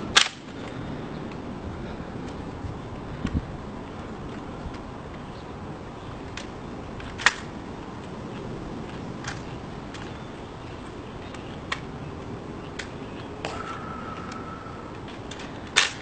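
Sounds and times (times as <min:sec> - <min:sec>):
faint steady tone: 0:13.5 - 0:15.8.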